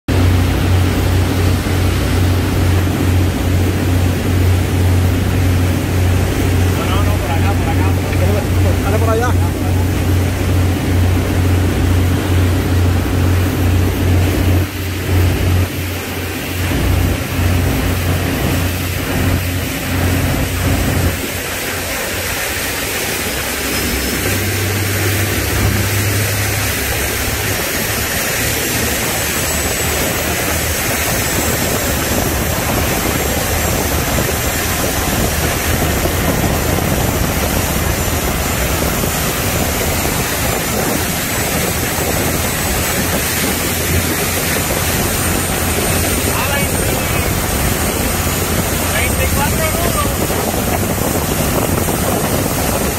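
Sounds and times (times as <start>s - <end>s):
rushing wind and water: 0.0s - 52.9s
motorboat engine drone: 0.1s - 52.9s.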